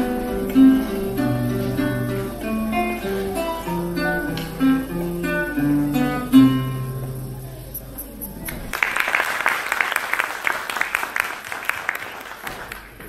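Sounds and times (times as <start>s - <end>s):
solo classical guitar: 0.0s - 8.7s.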